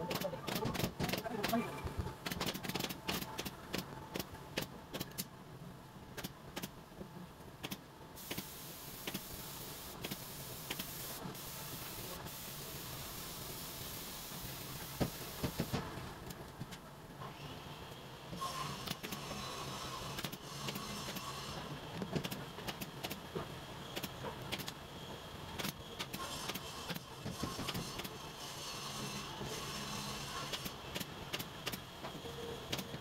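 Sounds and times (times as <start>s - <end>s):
steady hiss: 8.2s - 16.0s.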